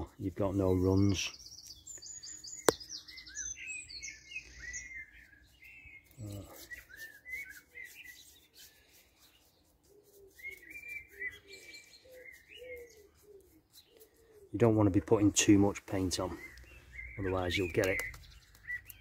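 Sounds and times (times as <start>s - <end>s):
garden birds chirping: 0.0s - 19.0s.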